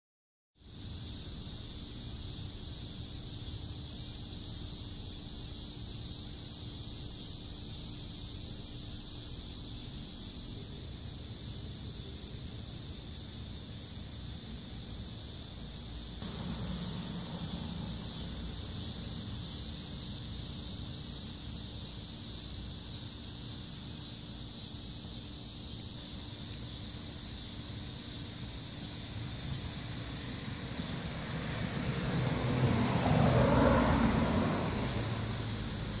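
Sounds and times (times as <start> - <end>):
cicadas buzzing: 0.6 - 36.0.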